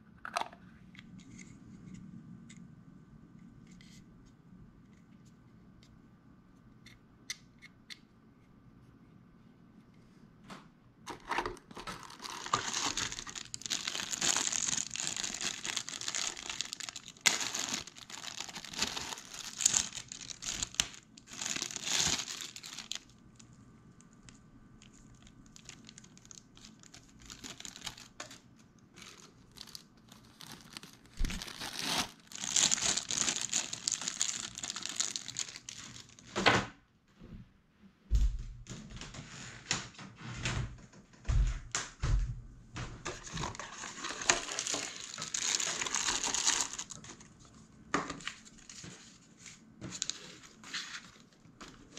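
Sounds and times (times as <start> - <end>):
plastic bag crinkling: 11.1 - 23.5, 24.2 - 36.4, 43.1 - 47.6.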